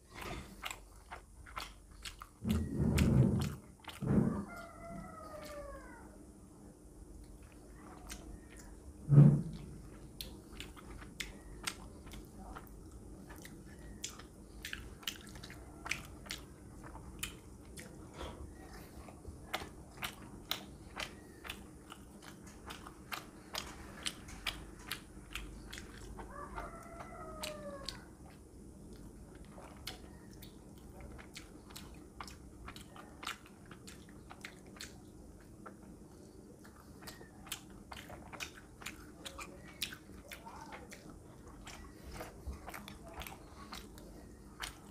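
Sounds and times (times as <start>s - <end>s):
wet chewing and lip smacks: 0.1s - 4.6s, 7.1s - 8.9s, 9.5s - 44.9s
loud low thump: 9.1s - 9.6s.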